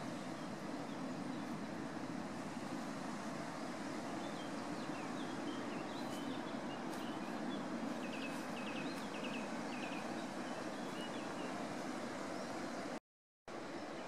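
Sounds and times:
flowing river water: 0.0s - 14.0s
small birds chirping: 4.2s - 11.7s.

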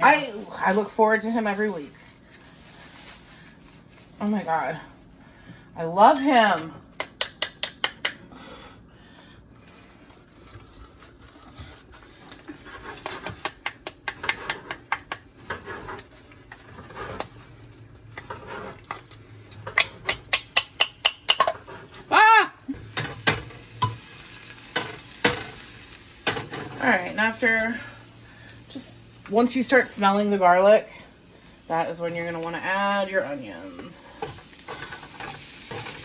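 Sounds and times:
garlic sizzling in hot oil: 18.1s - 36.0s.

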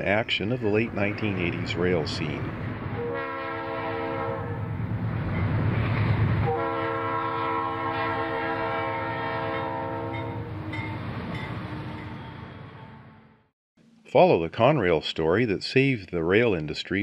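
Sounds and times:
locomotive rumble passing: 0.0s - 13.4s
locomotive air horn blasts: 3.0s - 4.7s, 6.4s - 10.7s.

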